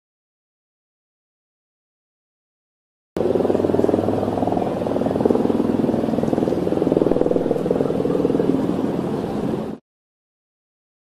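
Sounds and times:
motor engine running: 0:03.2 - 0:09.8.

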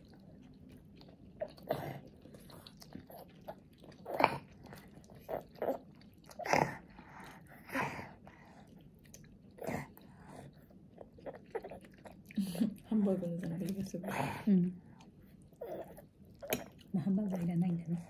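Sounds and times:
child chewing: 0:00.0 - 0:17.5.

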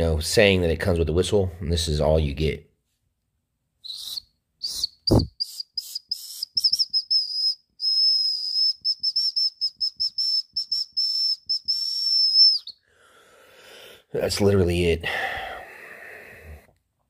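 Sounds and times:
small whistle toots: 0:03.8 - 0:12.8.

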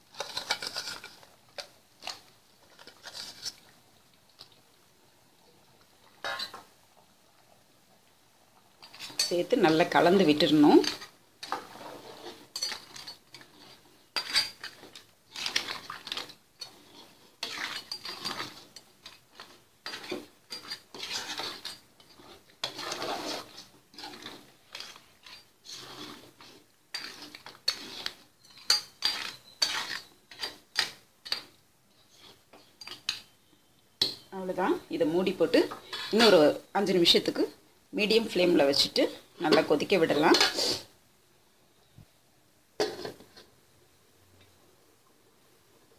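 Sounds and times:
metal ladle scraping pot: 0:00.0 - 0:03.7, 0:06.2 - 0:06.6, 0:08.8 - 0:33.4, 0:35.3 - 0:36.6, 0:38.5 - 0:40.9.

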